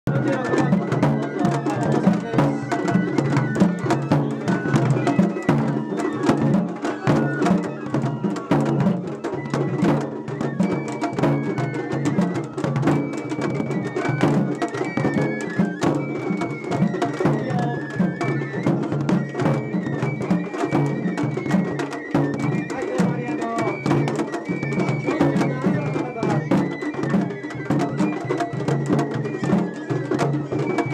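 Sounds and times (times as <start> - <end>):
traditional festival music: 0.0 - 30.9
large drum beaten with sticks: 0.1 - 30.9.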